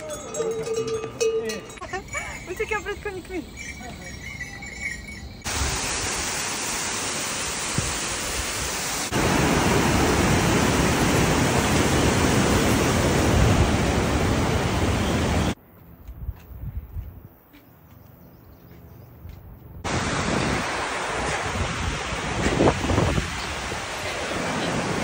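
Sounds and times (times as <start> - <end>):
loud rushing water: 5.5 - 15.6, 19.8 - 25.0.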